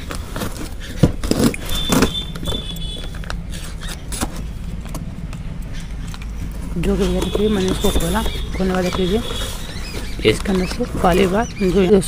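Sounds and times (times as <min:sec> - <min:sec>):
cardboard flaps tearing and rustling: 0:00.0 - 0:04.6, 0:06.4 - 0:12.0.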